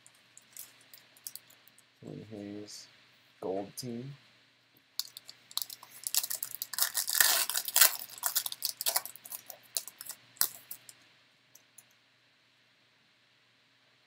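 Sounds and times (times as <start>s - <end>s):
foil wrapper crinkling: 0.4s - 1.5s, 5.0s - 11.0s.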